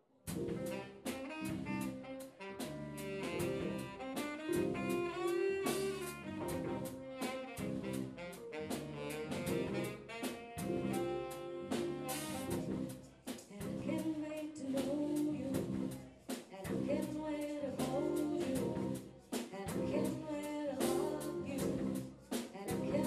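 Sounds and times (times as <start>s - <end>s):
saxophone melody: 0.3s - 13.0s, 16.7s - 19.1s, 19.7s - 22.0s, 22.7s - 23.0s
drum kit steady beat: 0.3s - 23.0s.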